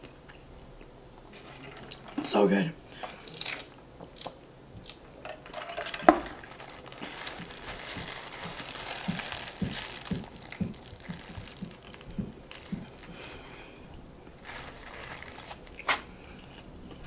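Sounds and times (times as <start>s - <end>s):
paper wrapper crinkling: 5.4s - 16.2s
chewing: 6.3s - 13.4s.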